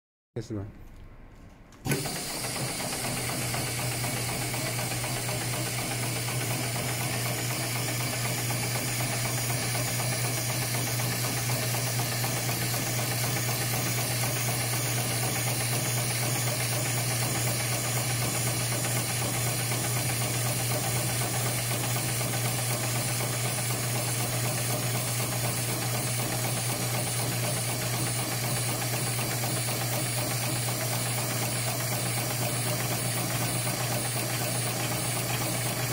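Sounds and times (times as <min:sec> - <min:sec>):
sewing machine humming and hissing: 0:01.8 - 0:35.9.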